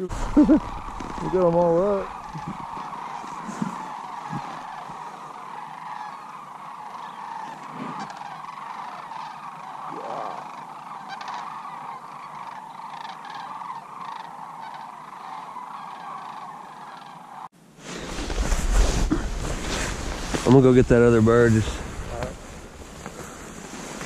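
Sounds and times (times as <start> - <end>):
cranes calling: 0.0 - 17.5.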